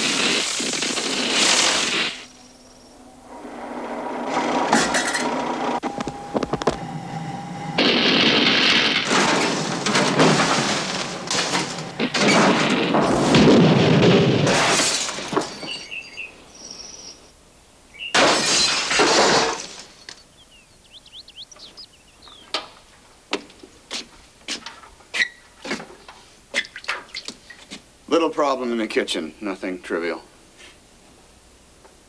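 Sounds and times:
things crashing: 0.0s - 2.3s, 3.4s - 6.8s, 7.6s - 15.9s, 18.1s - 20.0s
glass shattering: 7.8s - 15.9s, 18.1s - 19.9s.

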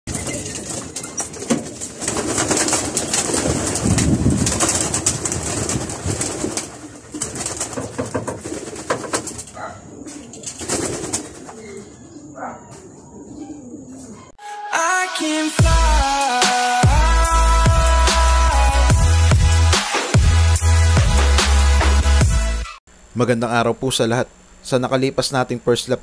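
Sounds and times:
wings flapping: 0.1s - 11.8s
pigeons cooing: 0.1s - 14.4s.

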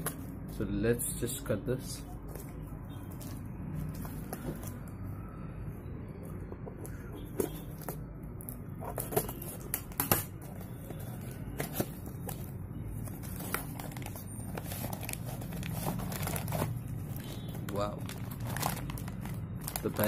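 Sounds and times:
scissors cutting packaging: 13.1s - 16.9s.

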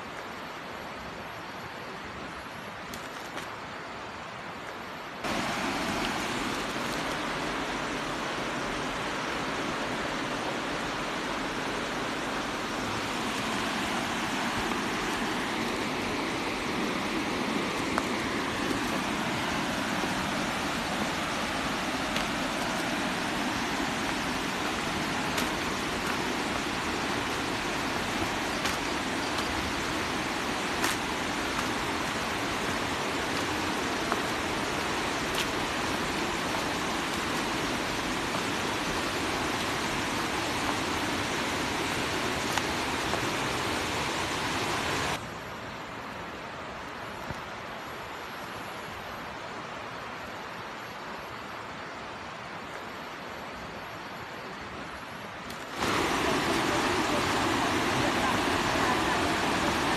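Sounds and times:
waterfall rushing: 5.2s - 45.2s, 55.3s - 59.9s.

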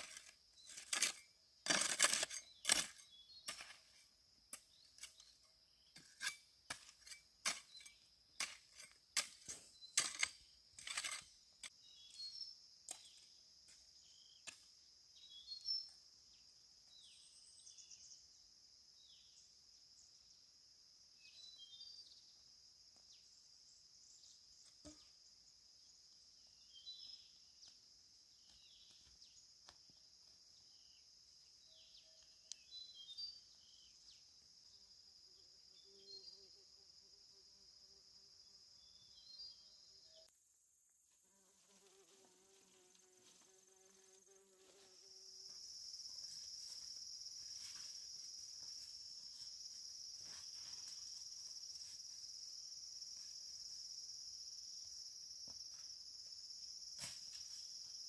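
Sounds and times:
high insect drone: 0.0s - 58.0s.

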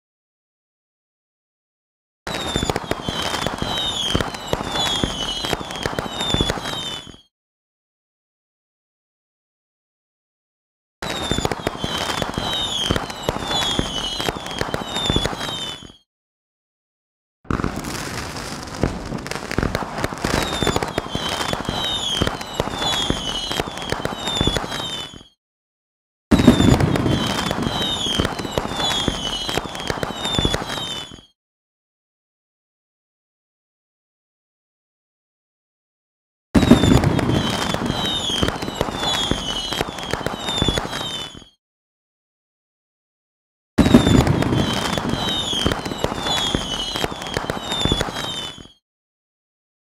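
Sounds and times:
fireworks crackling and banging: 2.3s - 7.2s, 11.0s - 16.0s, 17.5s - 25.3s, 26.3s - 31.3s, 36.6s - 41.5s, 43.8s - 48.7s
fireworks falling whistles: 2.3s - 7.3s, 11.0s - 16.1s, 17.5s - 25.4s, 26.3s - 31.4s, 36.6s - 41.6s, 43.8s - 48.8s.

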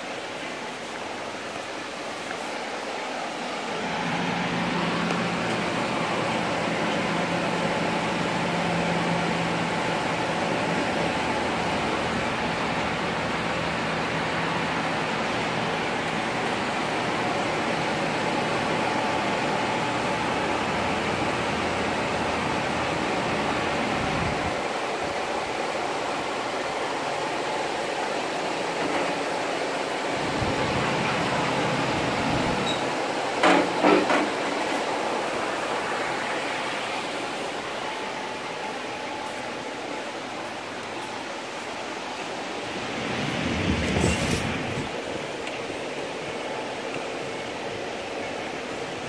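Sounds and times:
steady rushing noise: 34.4s - 49.0s.

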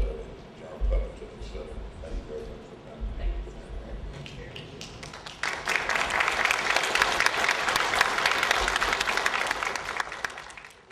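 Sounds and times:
audience applauding: 4.6s - 10.9s.

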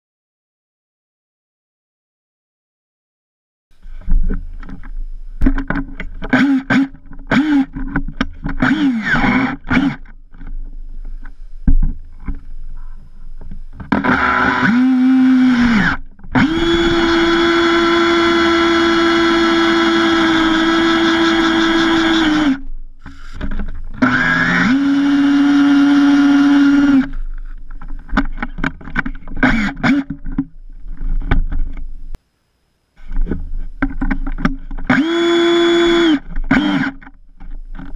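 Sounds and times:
drill boring into wood: 6.3s - 7.8s, 8.6s - 10.1s, 13.9s - 23.4s, 24.0s - 27.2s, 29.4s - 30.1s, 34.8s - 37.0s
power drill whirring: 6.3s - 7.8s, 8.6s - 10.1s, 13.9s - 27.2s, 29.4s - 30.1s, 34.8s - 37.1s.

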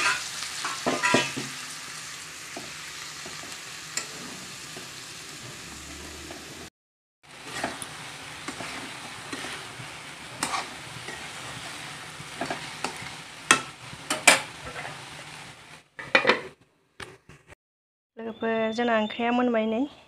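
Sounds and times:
metal lid clattering: 0.0s - 1.5s
food sizzling in pan: 0.0s - 16.1s
spatula scraping pan: 2.5s - 6.6s, 7.3s - 16.5s.

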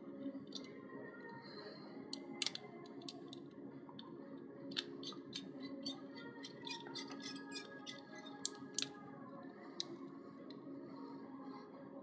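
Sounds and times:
clicks of wire in terminal: 2.1s - 3.4s.

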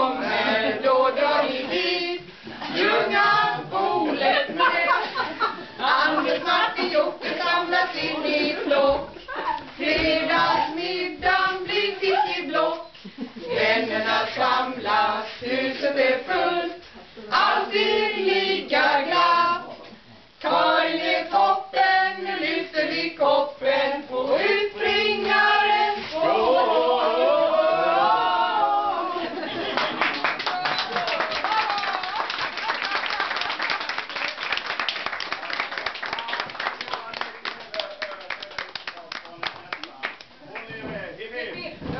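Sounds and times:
group singing unaccompanied: 0.0s - 19.8s, 20.4s - 29.6s.

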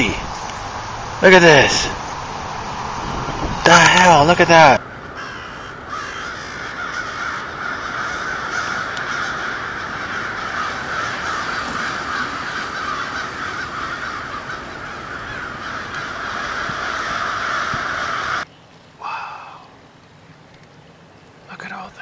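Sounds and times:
crows cawing: 3.7s - 19.8s.

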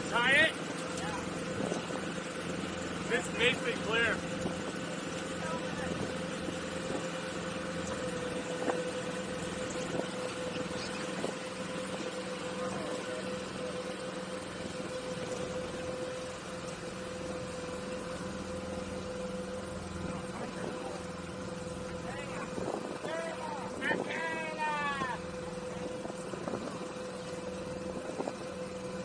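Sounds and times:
outboard motor idling: 0.0s - 29.0s.

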